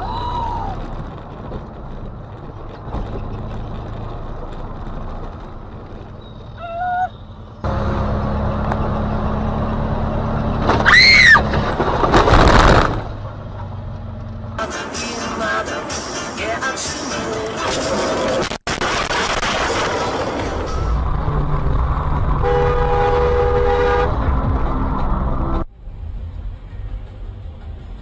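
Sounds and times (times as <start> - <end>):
car engine and road noise: 0.0 - 28.0
high squeal: 6.1 - 7.4.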